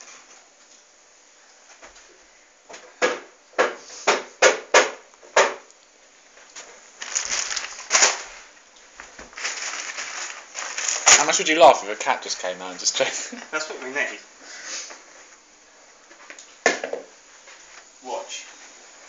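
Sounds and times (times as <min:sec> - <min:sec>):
rustling and scuffing: 0:06.3 - 0:11.6.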